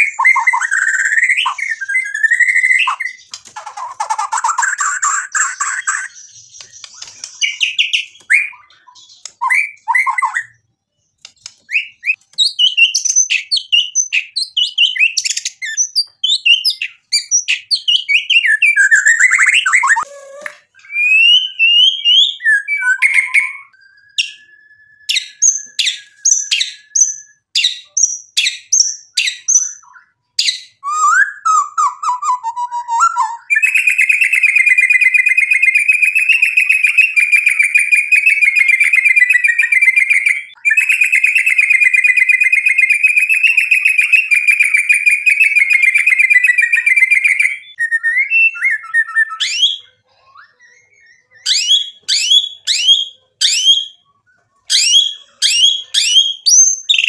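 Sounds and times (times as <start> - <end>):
bird singing whistled song: 0.0 - 57.0
sharp clicks: 11.2 - 12.5.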